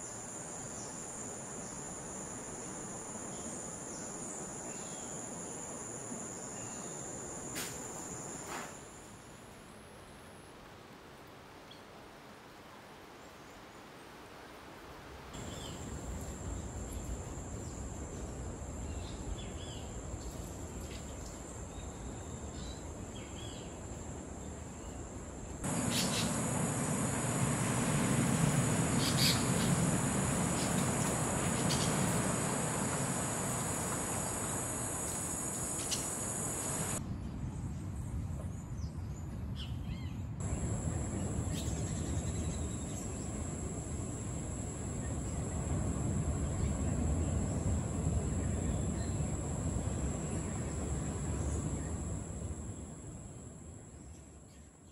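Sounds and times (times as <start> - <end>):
high-pitched insect drone: 25.6 - 37.0, 40.4 - 53.7
low rushing noise: 25.6 - 37.0, 40.4 - 53.8
bird chirps: 25.7 - 37.0.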